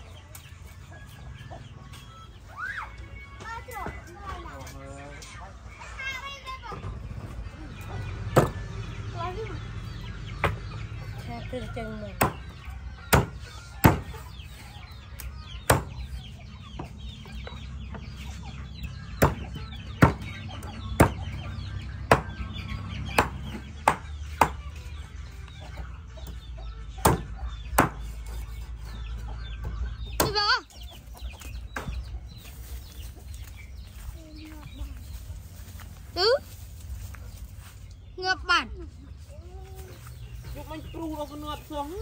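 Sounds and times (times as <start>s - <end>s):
chickens clucking and chirping: 0.0s - 42.0s.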